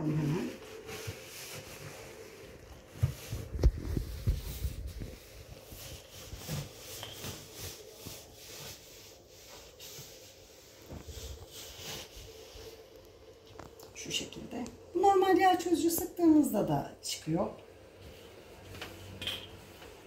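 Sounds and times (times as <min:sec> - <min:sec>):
paper towel rubbing oven floor: 0:00.0 - 0:12.9.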